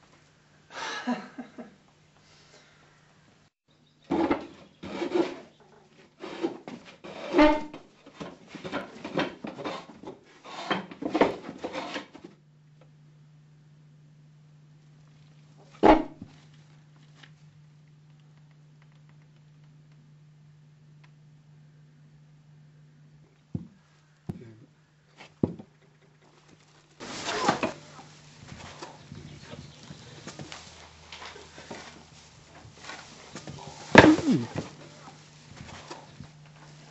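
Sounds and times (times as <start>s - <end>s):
low hum: 27.0s - 36.9s
rough vocal cries and snarls: 33.4s - 34.8s.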